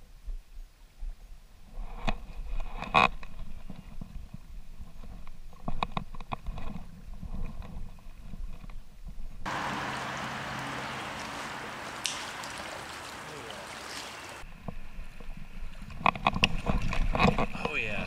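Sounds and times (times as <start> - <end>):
stream rushing: 9.4 - 14.5
fishing rod handling rumble: 15.8 - 17.7.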